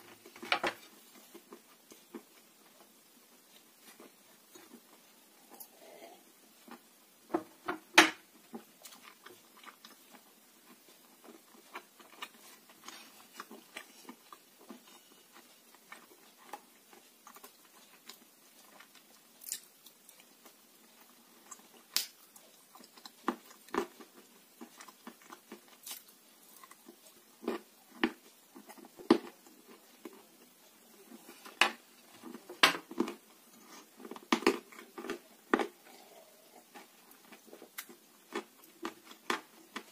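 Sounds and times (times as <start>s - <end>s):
quiet chewing: 8.3s - 39.9s.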